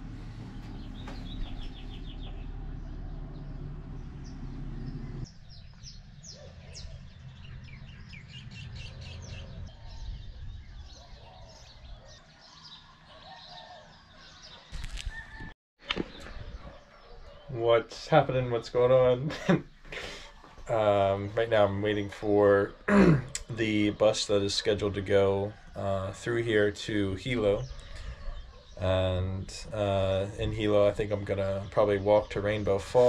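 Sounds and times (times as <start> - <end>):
low steady rumble: 0.0 - 6.3
birds chirping: 0.0 - 33.0.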